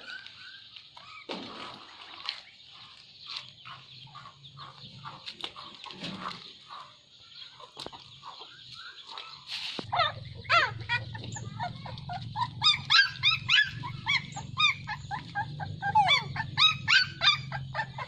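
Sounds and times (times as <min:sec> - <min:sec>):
fowl calls: 0:07.6 - 0:18.0.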